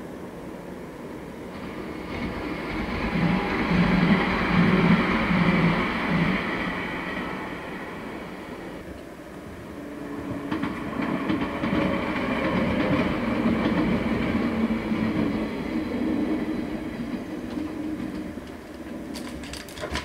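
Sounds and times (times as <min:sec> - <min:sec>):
electric train rumbling past: 0:00.0 - 0:20.0
wheels clicking over rail joints: 0:16.9 - 0:20.0.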